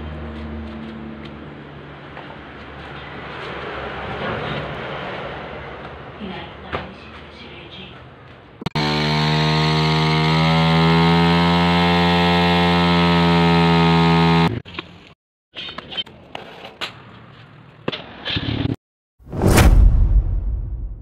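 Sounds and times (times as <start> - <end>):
motorcycle engine revving high: 8.8 - 14.6.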